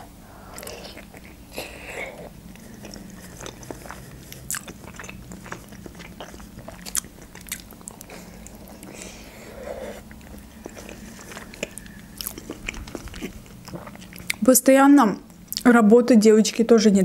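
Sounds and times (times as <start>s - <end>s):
person biting and chewing: 0.4s - 9.2s, 10.0s - 14.4s.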